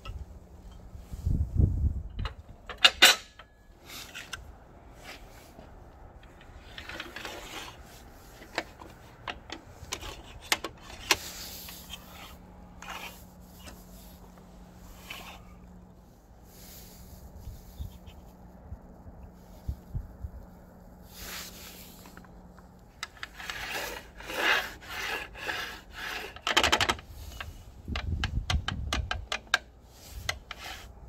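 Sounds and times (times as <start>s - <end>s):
clicks and knocks of saw parts: 2.1s - 4.4s, 6.2s - 13.8s, 22.1s - 30.9s.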